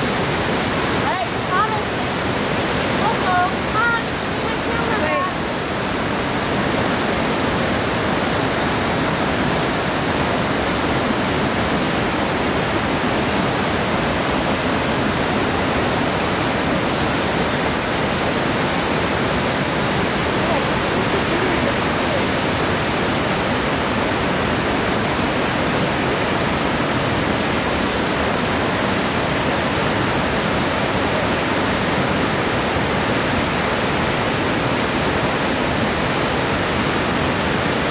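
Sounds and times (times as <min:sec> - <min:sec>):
rocky stream flowing: 0:00.0 - 0:37.9
waterfall rushing: 0:00.0 - 0:37.9.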